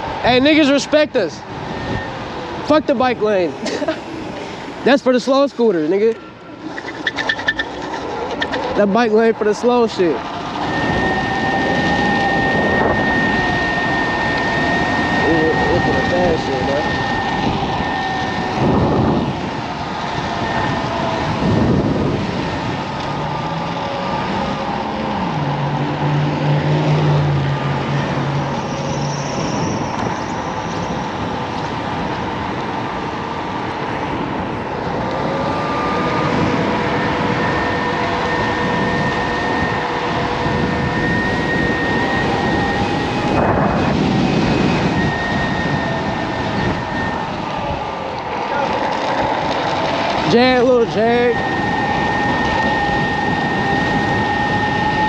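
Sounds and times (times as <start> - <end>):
deeper hum: 0.0 - 55.0
electric scooter motor whine: 0.0 - 55.0
wind and tyre noise: 0.0 - 55.0.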